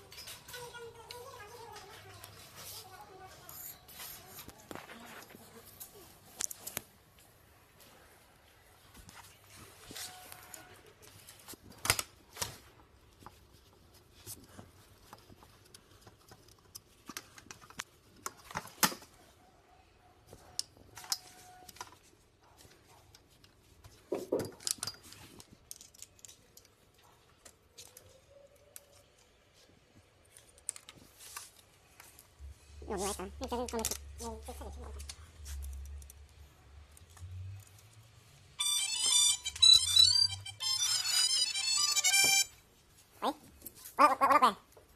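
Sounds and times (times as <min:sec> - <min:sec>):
plastic umbrella parts clicking: 0:11.1 - 0:13.7, 0:15.0 - 0:19.1, 0:24.4 - 0:29.4.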